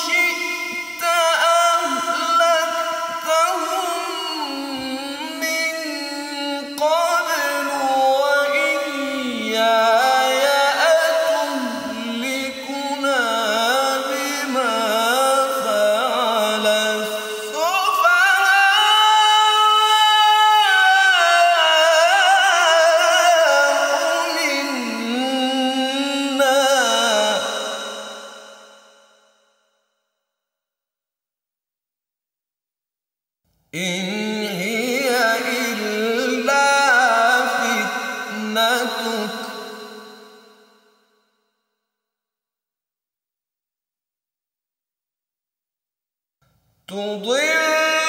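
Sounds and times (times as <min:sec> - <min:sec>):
man reciting melodically: 0:00.0 - 0:28.4, 0:33.8 - 0:40.2, 0:46.9 - 0:48.0.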